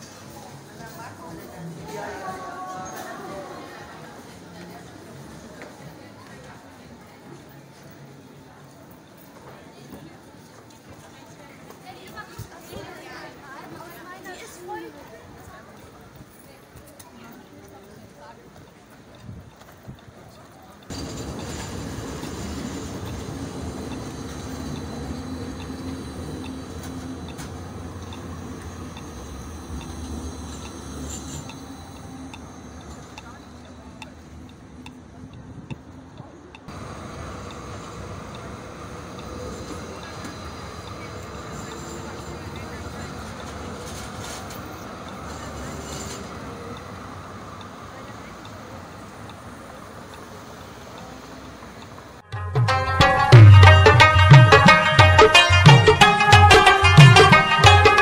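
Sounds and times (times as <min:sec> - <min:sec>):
city street noise: 0:00.0 - 0:58.0
tram rumbling past: 0:00.0 - 0:58.0
tram motor hum: 0:18.8 - 0:58.0
music with drumming: 0:52.3 - 0:58.0.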